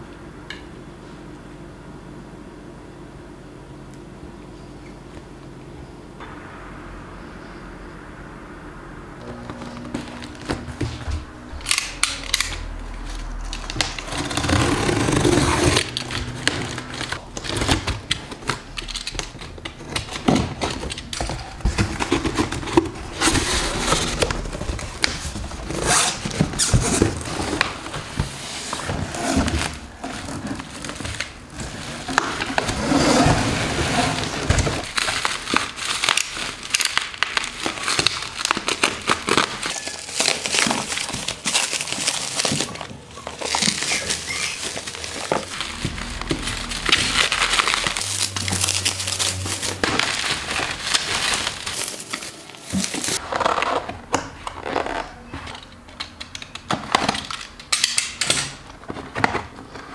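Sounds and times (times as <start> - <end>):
bubble wrap crinkling: 9.3 - 55.3.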